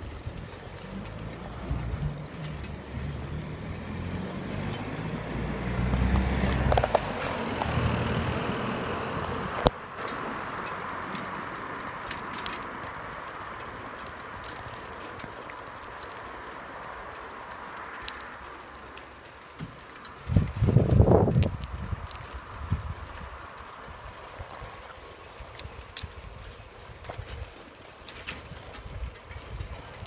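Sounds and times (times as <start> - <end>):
rumble and hiss of moving: 0.0 - 30.0
wind on microphone: 20.2 - 27.5.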